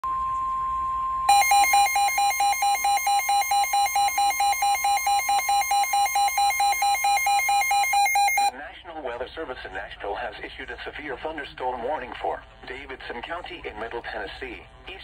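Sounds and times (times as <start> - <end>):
fast pulsing alarm beep: 1.3 - 8.5
steady alert tone: 1.3 - 8.5.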